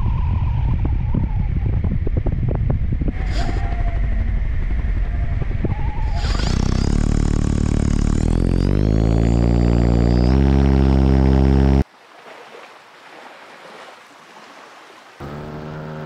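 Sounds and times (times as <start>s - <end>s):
wind buffeting microphone: 0.0s - 7.2s
paramotor motor and propeller: 3.1s - 11.8s, 15.2s - 16.0s.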